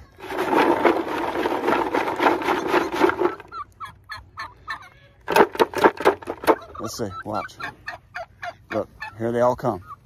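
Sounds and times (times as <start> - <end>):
poultry calling: 6.4 - 10.0.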